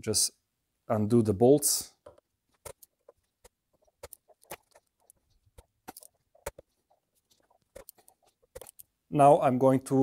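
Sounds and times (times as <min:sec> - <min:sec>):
gloved hands handling parts: 0:01.9 - 0:09.1.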